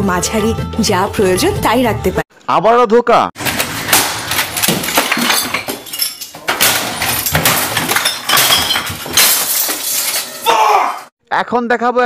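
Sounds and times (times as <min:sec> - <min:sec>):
objects crashing: 0:03.4 - 0:10.5
glass shattering: 0:03.4 - 0:10.7.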